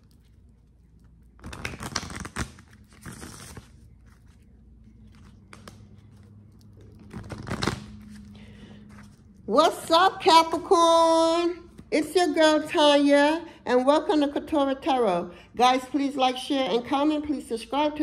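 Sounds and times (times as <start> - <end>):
low steady hum: 0.0 - 18.0
cards shuffling and rustling: 1.4 - 9.3.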